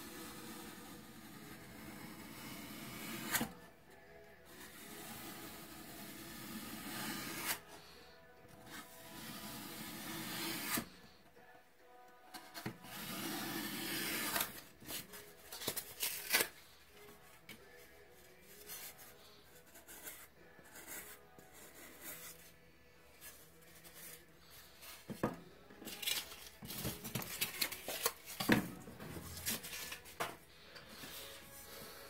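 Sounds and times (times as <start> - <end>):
knife cutting foam board: 0.1 - 3.5, 4.6 - 7.6, 9.0 - 10.9, 12.6 - 15.0
foam scraping and rubbing: 4.6 - 7.7, 8.7 - 10.9, 12.8 - 15.5.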